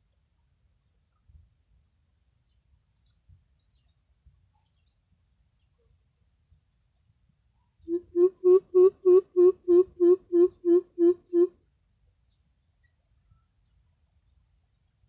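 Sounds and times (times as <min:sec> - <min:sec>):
bird deep hooting: 0:07.9 - 0:11.5.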